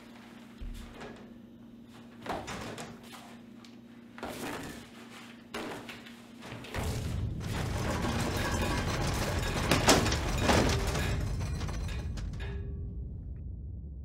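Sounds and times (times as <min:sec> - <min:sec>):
steady low hum: 0:00.0 - 0:14.0
loud deep rumble: 0:06.8 - 0:14.0.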